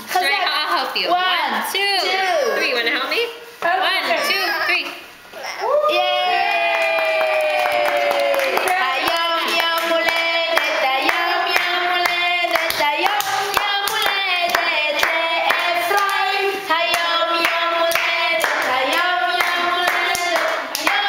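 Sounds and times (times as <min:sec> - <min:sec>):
people clapping in time: 0:06.5 - 0:16.2, 0:16.9 - 0:21.0
group singing a celebration song: 0:07.6 - 0:21.0.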